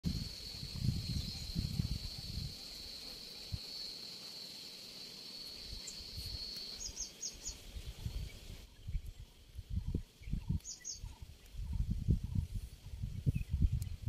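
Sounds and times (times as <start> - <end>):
insect chirps: 0.0 - 14.0
high-pitched insect drone: 0.1 - 8.6.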